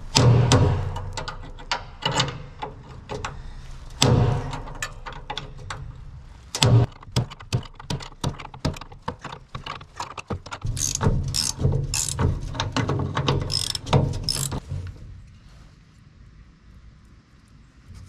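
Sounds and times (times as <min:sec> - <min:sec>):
ratchet wrench clicking: 0:10.6 - 0:12.6, 0:13.2 - 0:14.6.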